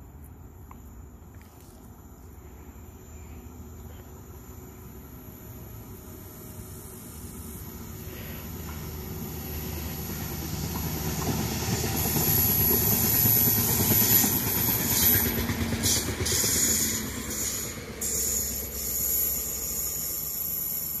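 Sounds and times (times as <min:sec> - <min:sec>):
train wheels rolling on rails: 0:04.8 - 0:21.0.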